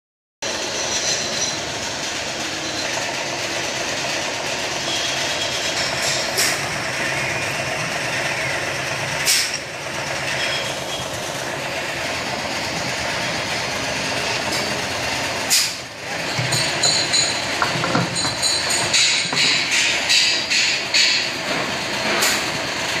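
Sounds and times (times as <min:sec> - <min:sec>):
printing machine running: 0:00.4 - 0:23.0
short sharp hiss: 0:09.2 - 0:09.6.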